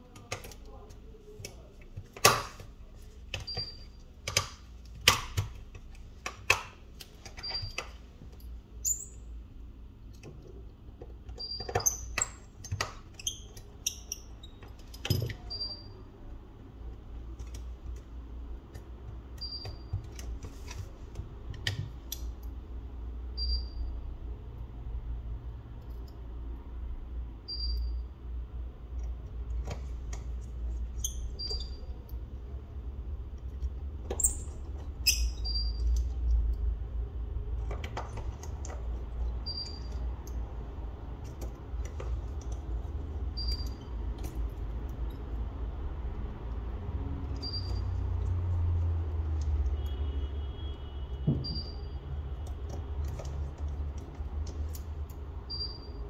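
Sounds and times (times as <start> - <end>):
small clicks and taps of tools: 0.0 - 9.2, 10.0 - 15.8, 16.9 - 22.7, 25.7 - 26.5, 28.9 - 32.3, 37.5 - 50.1, 52.3 - 55.7.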